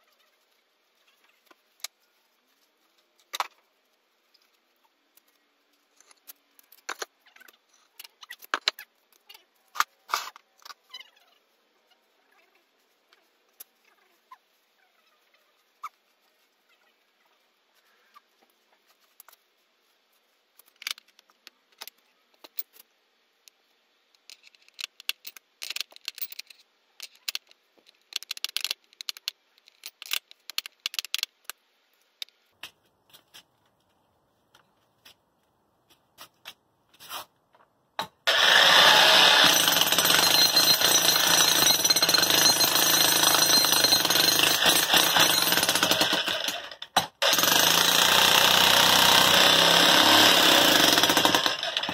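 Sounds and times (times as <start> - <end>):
electric jackhammer pounding concrete: 38.3 - 51.9.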